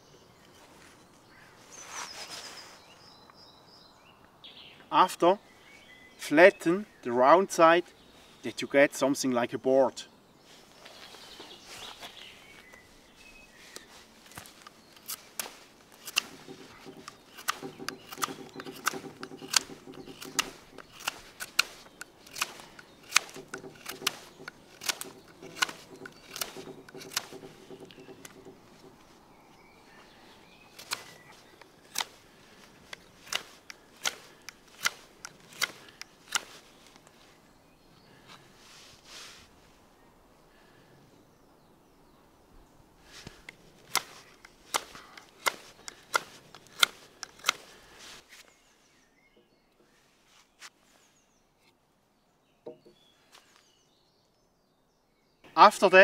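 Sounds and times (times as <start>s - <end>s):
knife blade shaving wood: 15.0s - 28.9s, 32.8s - 36.6s.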